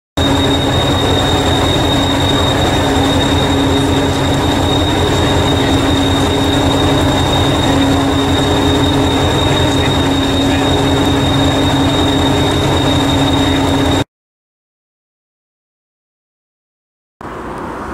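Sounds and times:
diesel engine idling: 0.2s - 14.0s
thin high-pitched tone: 0.2s - 14.0s.

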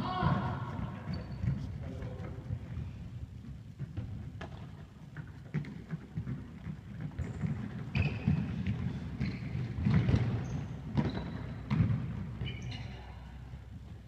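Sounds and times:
shoes squeaking on court: 0.8s - 2.4s, 3.8s - 13.3s.

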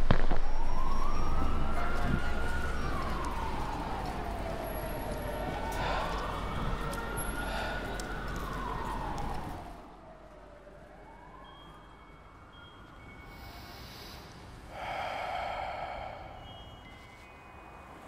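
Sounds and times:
emergency siren wailing: 0.0s - 13.7s, 14.8s - 18.0s
street noise: 0.0s - 18.0s.

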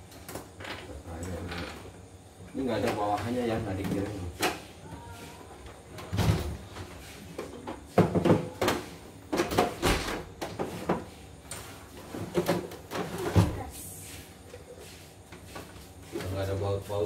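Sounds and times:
plastic clunks and knocks: 7.6s - 11.1s.

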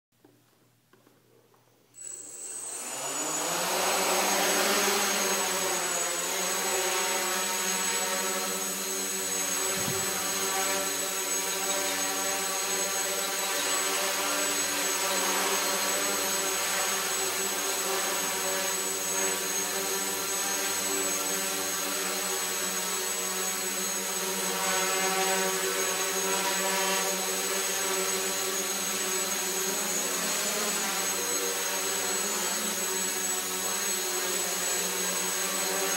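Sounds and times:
thin high whine: 2.0s - 21.6s
drone motors buzzing: 2.0s - 35.9s.

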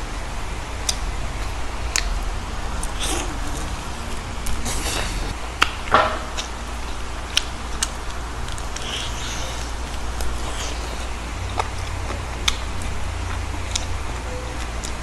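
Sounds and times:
low background hum: 0.0s - 15.0s
chewing crispy food: 0.6s - 15.0s
wet mouth clicks: 1.9s - 2.2s, 7.3s - 14.0s.

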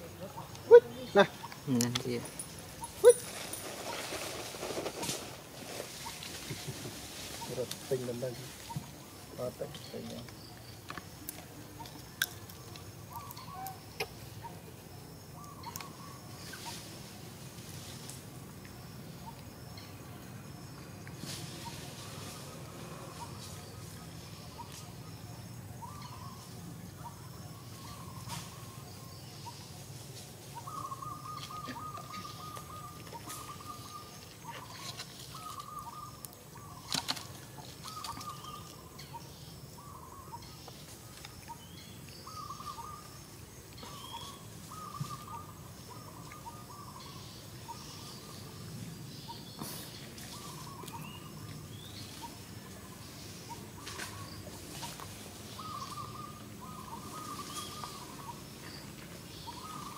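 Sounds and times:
birds calling: 0.0s - 59.9s
higher bird chirps: 30.5s - 59.9s.

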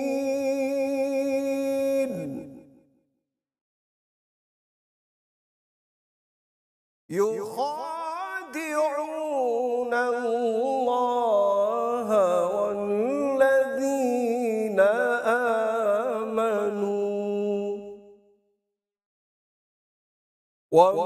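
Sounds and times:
man reciting melodically: 0.0s - 2.6s, 7.1s - 18.0s, 20.8s - 21.0s.

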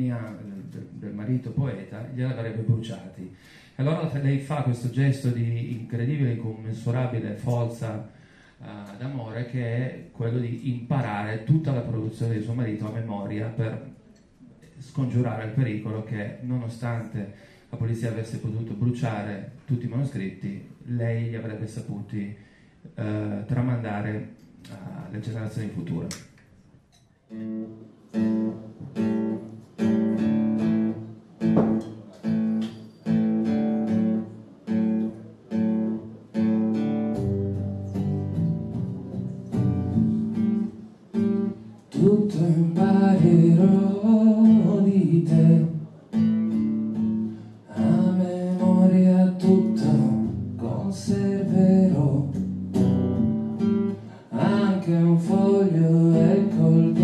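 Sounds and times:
slow acoustic guitar: 26.9s - 57.0s
man singing: 41.9s - 45.9s, 47.7s - 52.5s, 54.1s - 57.0s.

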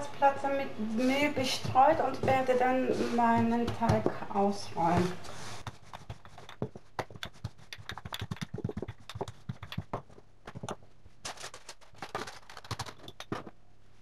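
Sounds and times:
rolling pin clicking on stone worktop: 5.6s - 13.5s.

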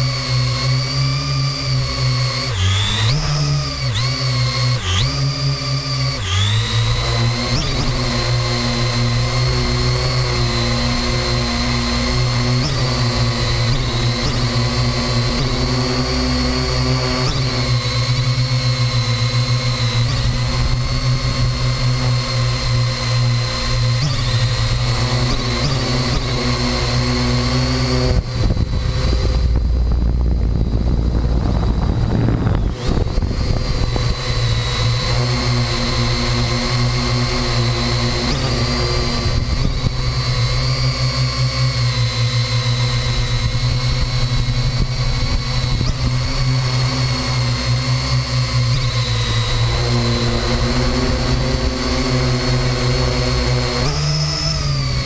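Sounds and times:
drone motors and propellers: 0.0s - 55.0s
wind rumble: 28.1s - 35.1s.

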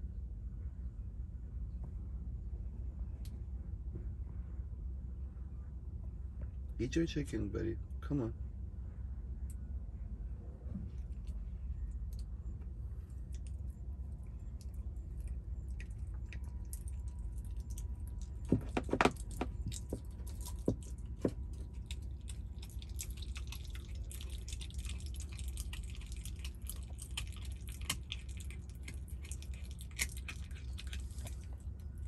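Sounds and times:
fox chewing with crackly clicks: 10.9s - 32.0s.

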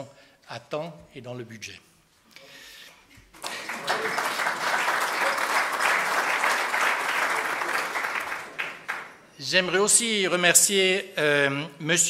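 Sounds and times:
audience applauding: 3.3s - 9.3s.

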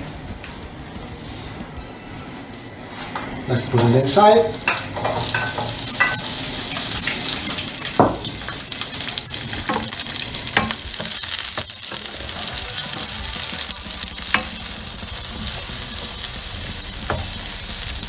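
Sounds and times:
tomatoes sizzling in oil: 3.4s - 18.0s
wooden spoon knocking pan: 7.9s - 8.6s.

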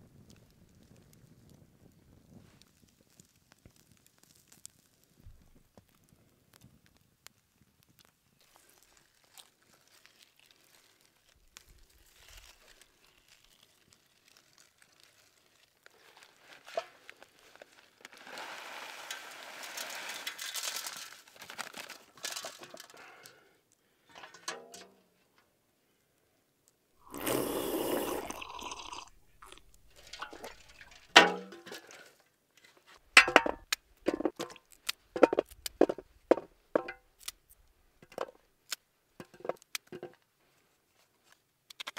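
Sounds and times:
hands rustling in roasting pan: 27.0s - 32.1s.

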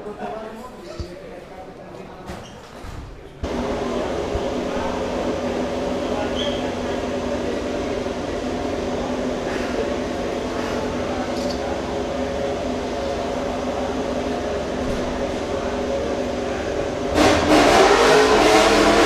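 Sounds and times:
loud engine revving: 3.4s - 11.0s, 15.4s - 19.0s
mechanical hum with held tones: 3.4s - 17.2s.

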